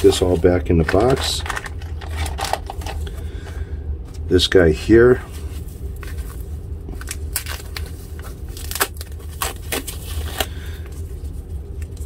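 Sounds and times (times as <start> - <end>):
foam sheet crinkling: 5.3 - 12.0.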